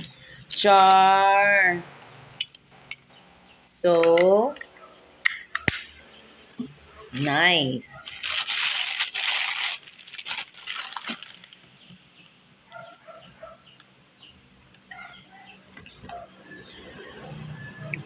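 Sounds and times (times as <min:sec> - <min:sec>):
plastic bag crinkling: 0:07.1 - 0:12.0.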